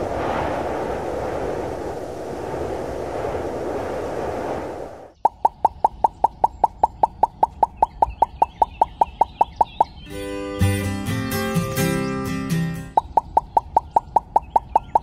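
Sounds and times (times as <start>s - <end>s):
steady rushing noise: 0.0s - 10.0s
cartoon pop sound effects: 5.2s - 10.0s.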